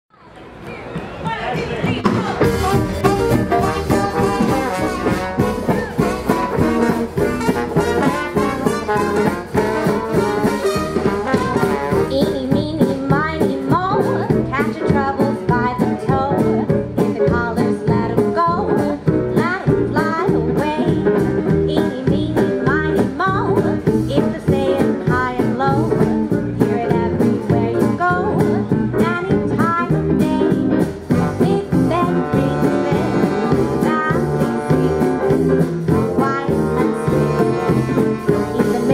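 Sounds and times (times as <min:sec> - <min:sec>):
jazz band playing swing: 0:01.8 - 0:38.9
woman singing: 0:02.4 - 0:05.8, 0:11.2 - 0:38.9.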